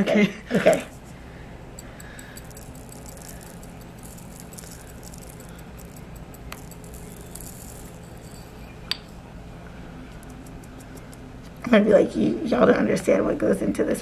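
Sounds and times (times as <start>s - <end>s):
tiny crystals pattering: 0.6s - 1.0s, 1.8s - 9.2s, 10.0s - 11.6s.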